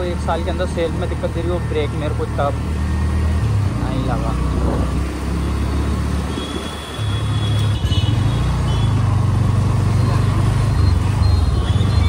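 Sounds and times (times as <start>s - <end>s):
wind rumble on microphone: 4.4s - 5.2s.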